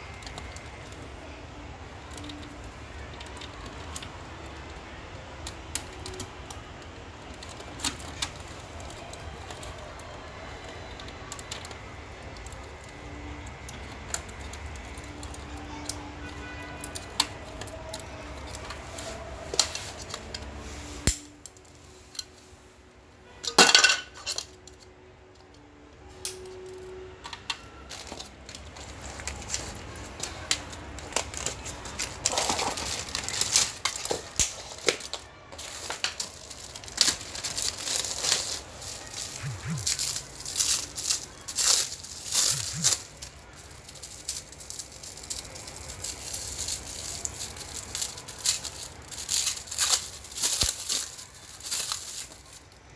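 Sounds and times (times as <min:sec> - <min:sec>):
plastic plugs clicking and rattling: 0:26.2 - 0:52.6.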